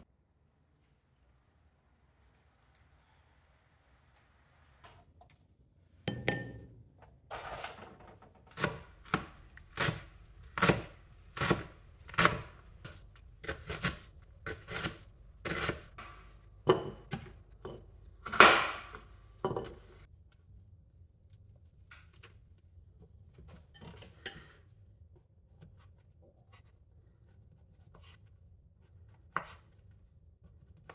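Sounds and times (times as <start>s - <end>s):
knife chopping on wooden board: 8.5s - 17.3s.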